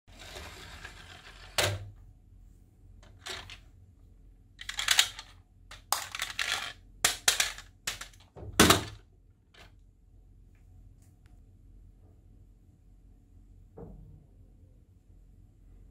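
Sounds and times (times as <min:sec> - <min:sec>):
toy truck clicking and clattering: 0:03.0 - 0:03.6, 0:04.6 - 0:09.0.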